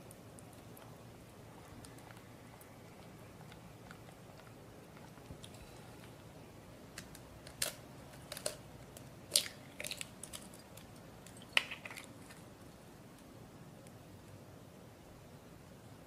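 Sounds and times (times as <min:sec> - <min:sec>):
eggshell cracking: 0:06.9 - 0:12.5.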